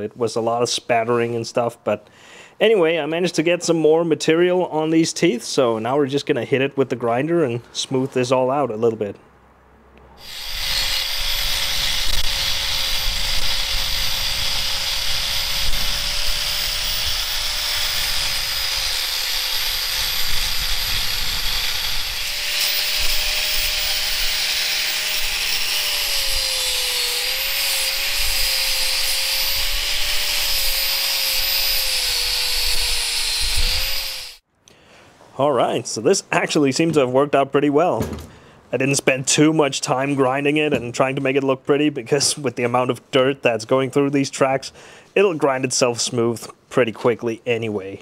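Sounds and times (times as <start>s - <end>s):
angle grinder grinding metal: 10.2s - 34.4s.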